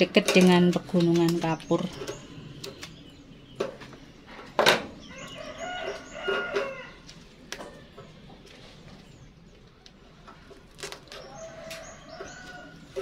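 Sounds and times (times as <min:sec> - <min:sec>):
chicken calling: 0:05.0 - 0:07.1.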